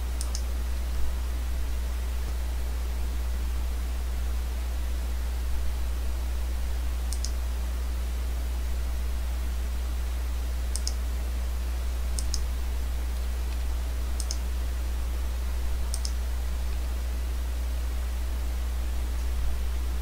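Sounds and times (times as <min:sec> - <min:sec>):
steady low hum: 0:00.0 - 0:20.0
computer mouse double clicks: 0:10.7 - 0:11.0, 0:14.2 - 0:14.4.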